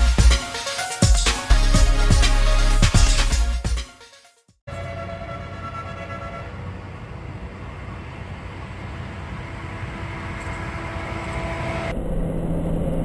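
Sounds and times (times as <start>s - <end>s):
freight train engine and wheels: 4.7s - 12.0s
faint steady engine tone: 4.8s - 13.0s.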